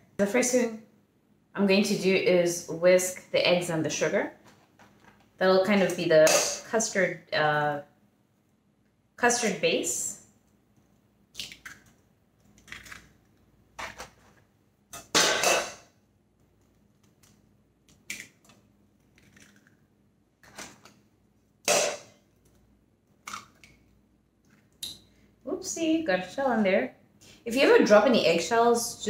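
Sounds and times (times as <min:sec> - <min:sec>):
eggs cracking against metal bowl: 0:11.3 - 0:14.2, 0:14.9 - 0:21.0, 0:21.6 - 0:25.0.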